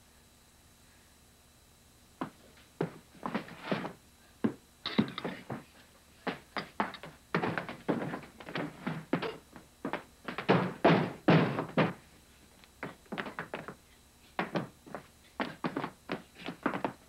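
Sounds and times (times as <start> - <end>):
knocks and clatters on table dishes: 4.9 - 5.4.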